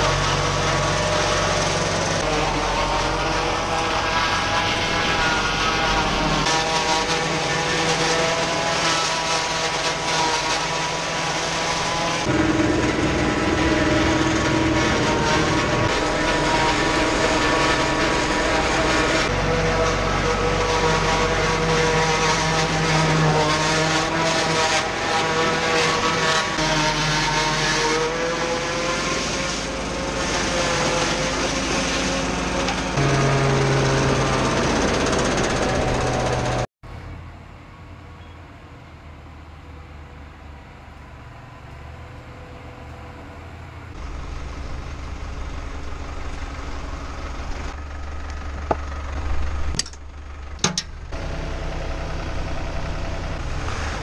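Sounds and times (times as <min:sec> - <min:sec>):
tractor diesel engine running: 0:00.0 - 0:27.1, 0:29.2 - 0:54.0
corn chopper running: 0:00.0 - 0:36.7, 0:50.6 - 0:54.0.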